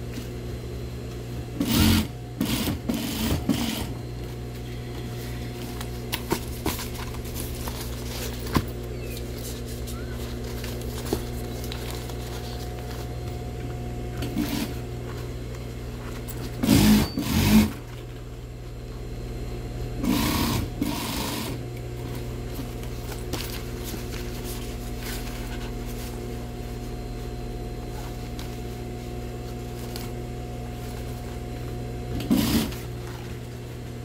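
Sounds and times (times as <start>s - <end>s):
sewing machine stitching: 1.6s - 3.9s, 14.3s - 14.8s, 16.6s - 17.8s, 20.0s - 21.6s, 32.2s - 32.8s
sewing machine motor humming: 1.6s - 4.0s, 14.1s - 14.8s, 16.6s - 17.8s, 20.0s - 21.6s, 32.1s - 33.0s.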